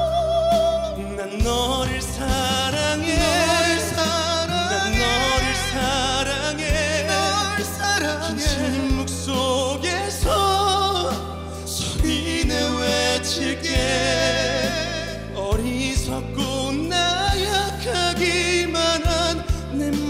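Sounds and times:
bass guitar: 0:00.0 - 0:20.0
duet singing pop ballad: 0:00.0 - 0:20.0
drum hits: 0:02.0 - 0:07.4.

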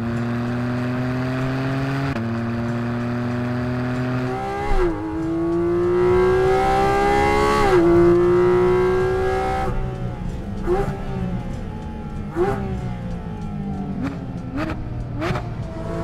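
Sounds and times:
car engine accelerating: 0:00.0 - 0:16.0.

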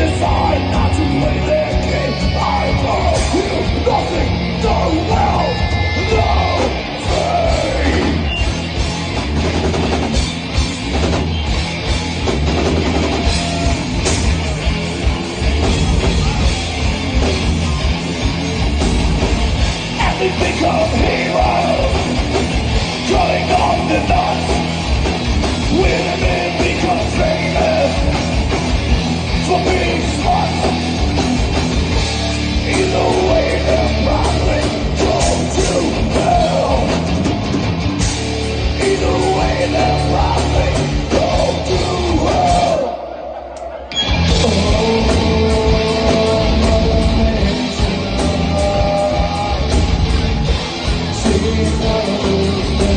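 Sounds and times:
sung vocals: 0:00.0 - 0:08.7, 0:19.7 - 0:37.6, 0:38.4 - 0:52.9
heavy metal band playing: 0:00.0 - 0:52.9.

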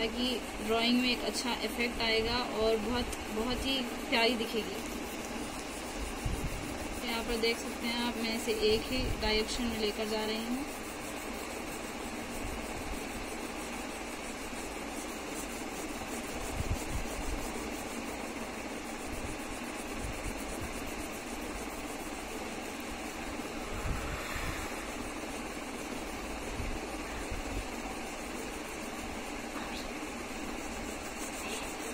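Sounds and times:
crayon rasping on paper: 0:00.0 - 0:23.8, 0:24.6 - 0:31.9.

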